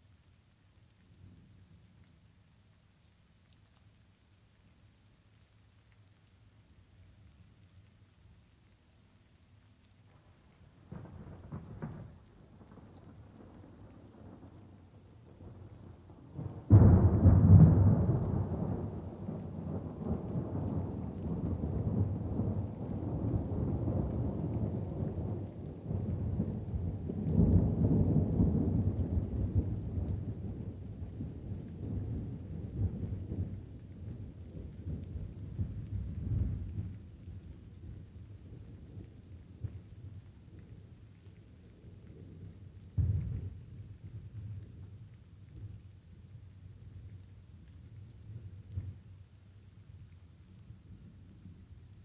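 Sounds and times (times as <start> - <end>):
light rain: 0.0 - 52.0
low thunder rumble: 15.3 - 40.3, 42.2 - 44.9.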